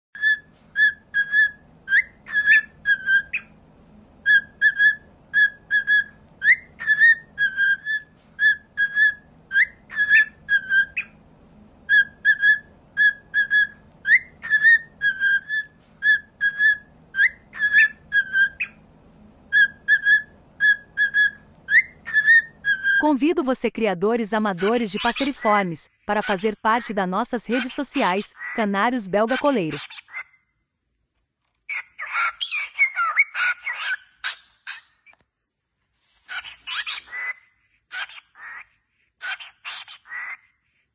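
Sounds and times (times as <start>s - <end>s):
cockatiel whistling: 0.2s - 3.6s, 4.2s - 11.2s, 11.9s - 23.0s.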